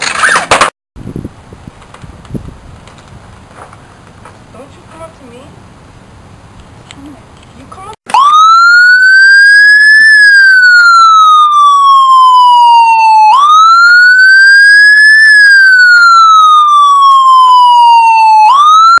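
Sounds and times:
emergency siren wailing: 8.1s - 19.0s.

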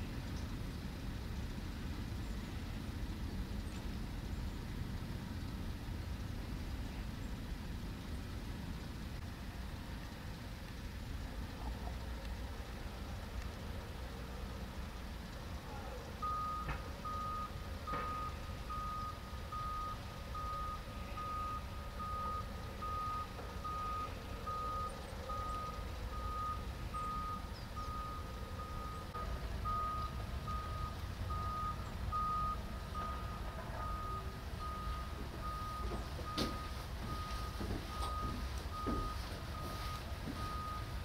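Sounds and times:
machine engine rumble: 0.0s - 41.0s
reversing alarm beeps: 16.2s - 41.0s.

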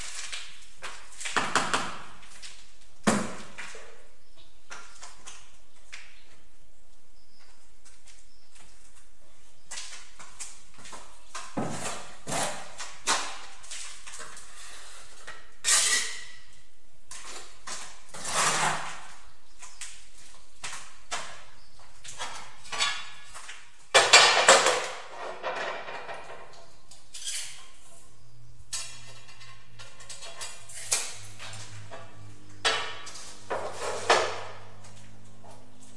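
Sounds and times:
scraping and clattering: 22.1s - 28.0s, 28.7s - 35.8s.

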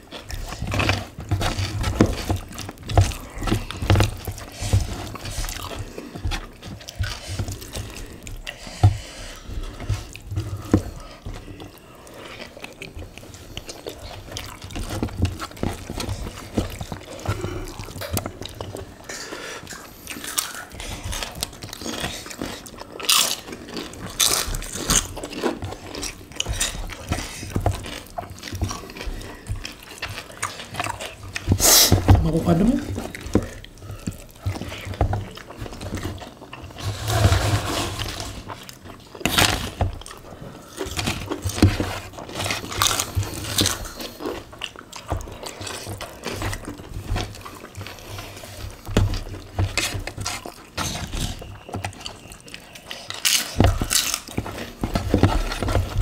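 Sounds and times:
wet chewing and lip smacking: 0.0s - 36.8s, 38.4s - 56.0s.

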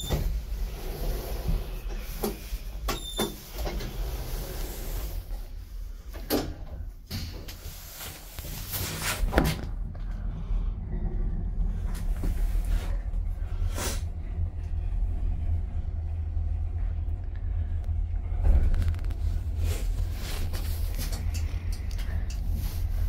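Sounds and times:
elevator doors sliding shut: 0.0s - 9.8s
steady low hum: 0.0s - 23.0s.

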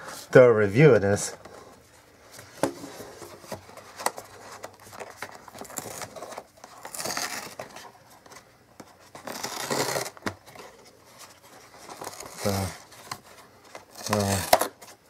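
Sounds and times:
cardboard tearing: 3.1s - 8.4s, 9.0s - 15.0s.

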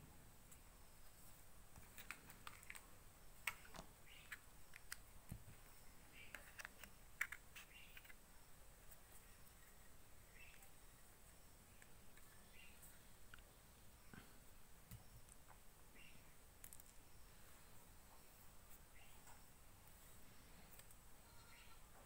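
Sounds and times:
plastic parts clicking and tapping: 6.2s - 8.2s.

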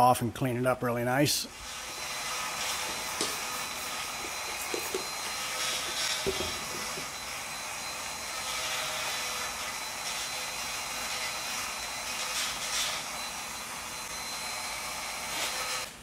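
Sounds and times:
electric fan humming: 1.4s - 16.0s
spray bottle squirts: 2.6s - 7.0s.

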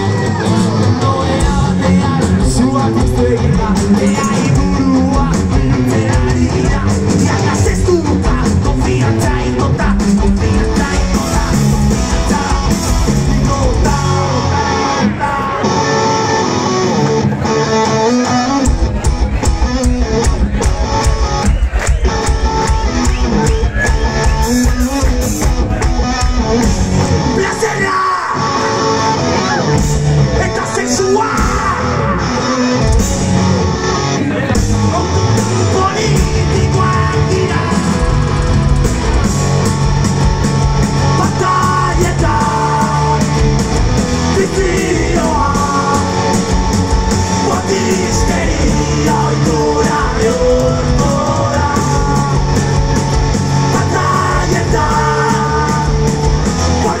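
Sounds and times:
person singing: 0.0s - 16.4s, 27.2s - 32.8s, 34.2s - 38.8s, 41.1s - 43.6s, 44.2s - 52.9s, 53.6s - 57.0s
live rock band: 0.0s - 57.0s
drums and cymbals: 0.1s - 14.2s, 34.5s - 57.0s.

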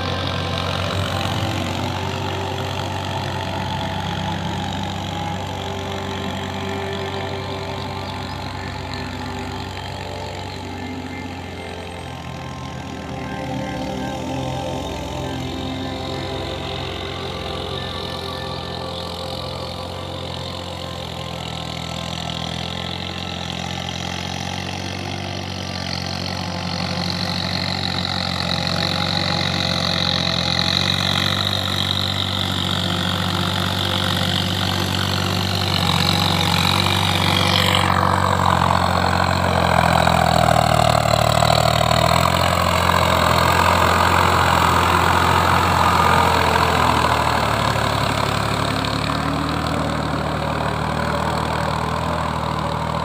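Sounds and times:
tractor diesel engine running: 0.0s - 53.0s.

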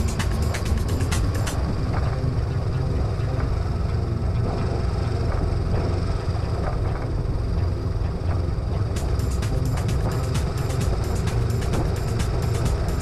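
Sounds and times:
motorcycle engine low rumble: 0.0s - 13.0s.

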